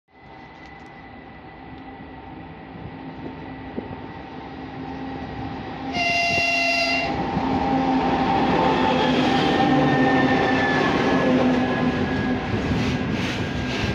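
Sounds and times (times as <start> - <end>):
locomotive horn blast: 5.9 - 7.2.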